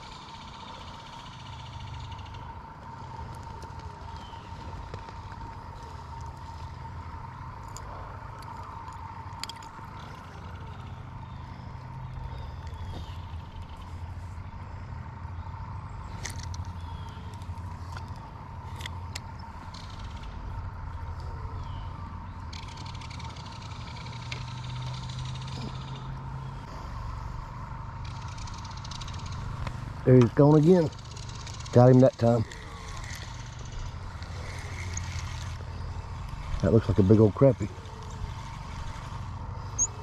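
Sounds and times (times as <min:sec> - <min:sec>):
high hum: 0:00.0 - 0:40.0
faint bird chirps: 0:03.9 - 0:26.9, 0:32.5 - 0:40.0
fishing reel clicks: 0:22.5 - 0:26.0, 0:28.0 - 0:35.6.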